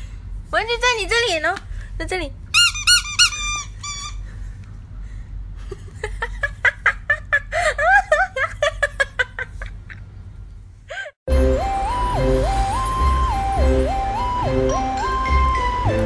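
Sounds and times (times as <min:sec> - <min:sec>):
squeaky dog toy squeaking: 0:02.5 - 0:04.3.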